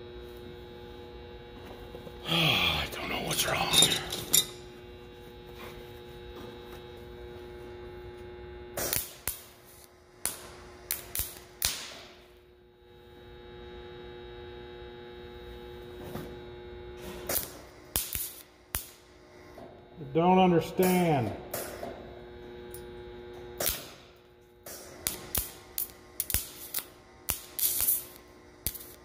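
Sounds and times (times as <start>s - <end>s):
electrical hum: 0.0s - 29.0s
welder arc popping: 7.8s - 12.5s, 15.1s - 29.0s.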